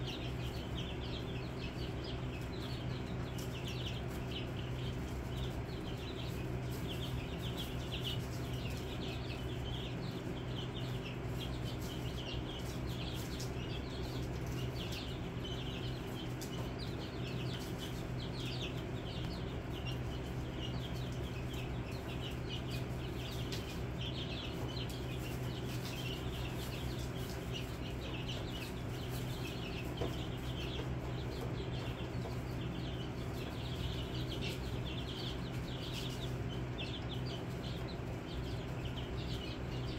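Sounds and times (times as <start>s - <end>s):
chicks peeping: 0.0s - 39.9s
steady low hum: 0.0s - 39.9s.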